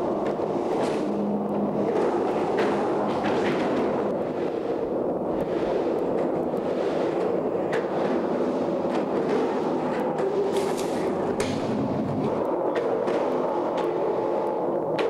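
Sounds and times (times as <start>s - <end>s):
skateboard clacks: 0.0s - 15.0s
skateboard wheels rumbling in pipe: 0.0s - 15.0s.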